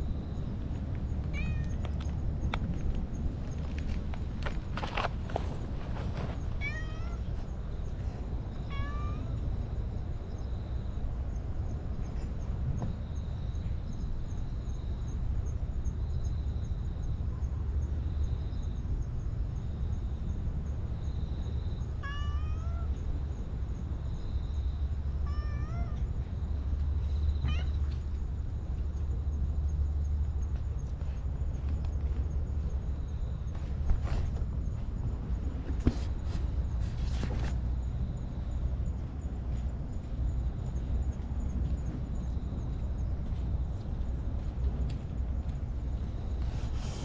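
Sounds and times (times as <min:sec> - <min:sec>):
steady low rumble: 0:00.0 - 0:21.9, 0:22.9 - 0:47.0
cat meowing: 0:06.6 - 0:07.3, 0:08.7 - 0:09.4, 0:22.0 - 0:23.0, 0:25.2 - 0:26.0, 0:27.4 - 0:27.9.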